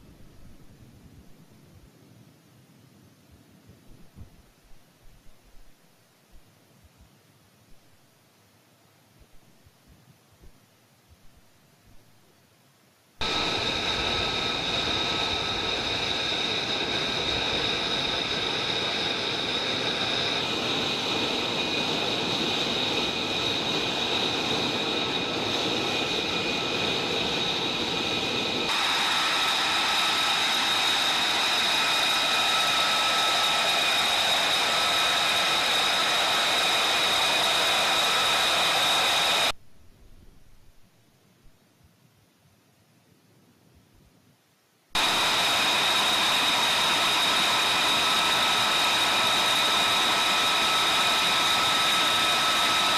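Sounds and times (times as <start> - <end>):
jet engine rushing and whining: 13.2 - 39.6, 45.0 - 52.9.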